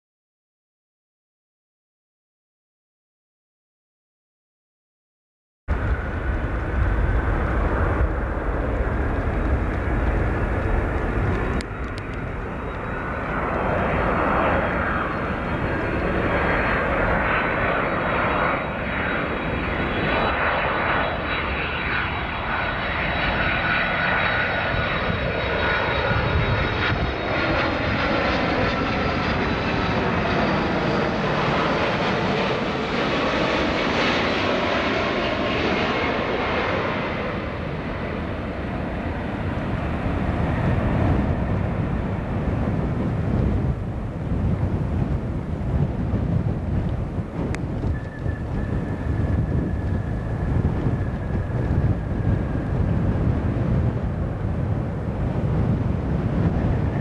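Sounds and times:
jet engine rumble with fan whine: 5.7 - 57.0.

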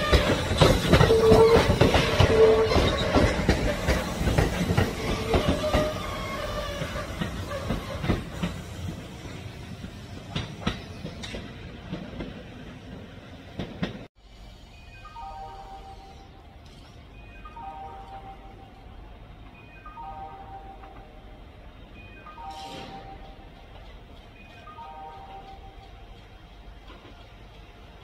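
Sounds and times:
train wheels clacking on rails: 0.0 - 14.1, 22.4 - 28.0
soft music: 14.6 - 27.8.

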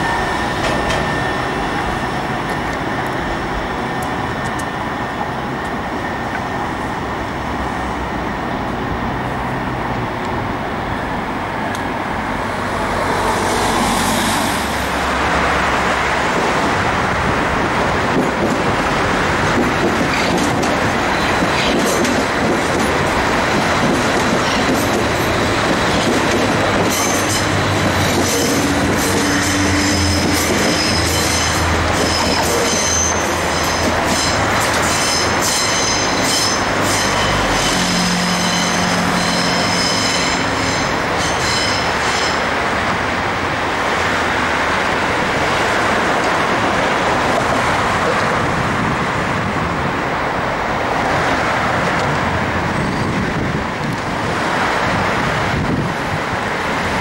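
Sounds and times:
steady high tone: 0.0 - 7.3
electric train rolling: 0.0 - 57.0
road traffic: 0.0 - 57.0
tram rolling on track: 0.0 - 57.0
train wheels squealing: 26.9 - 42.5.

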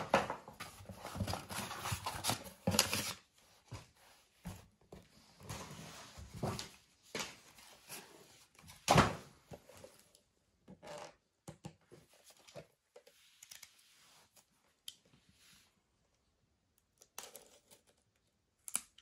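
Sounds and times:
gift box rustling and scraping: 0.4 - 6.8.

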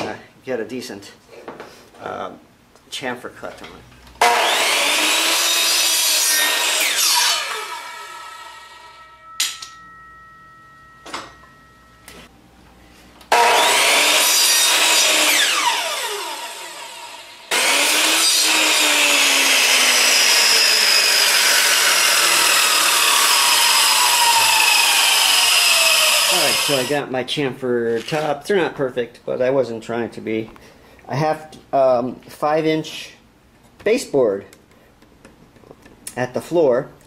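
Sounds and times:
miter saw running: 4.2 - 9.0, 13.3 - 26.9.

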